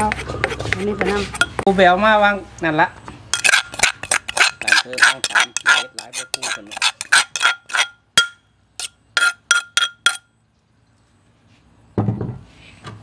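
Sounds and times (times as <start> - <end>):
metal spoon scraping a mortar: 0.0 - 1.7, 3.3 - 10.3
metal spoon clinking on a bowl: 3.4 - 10.3.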